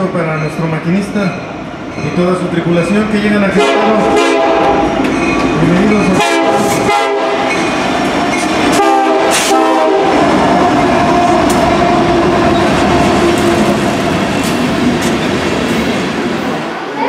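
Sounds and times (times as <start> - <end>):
locomotive horn: 3.5 - 4.9, 6.1 - 7.7, 8.7 - 11.5
freight cars rumbling and clattering: 4.6 - 17.0.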